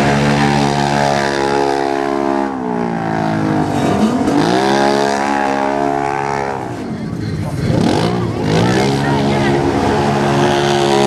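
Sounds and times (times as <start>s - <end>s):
utility vehicle engine revving: 0.0s - 11.0s.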